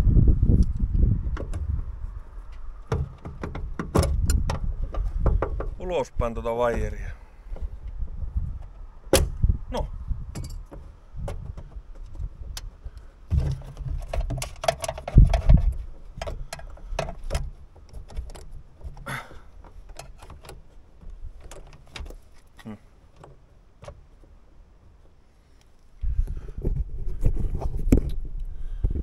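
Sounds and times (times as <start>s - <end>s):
dull low knocks: 2.8s - 5.9s.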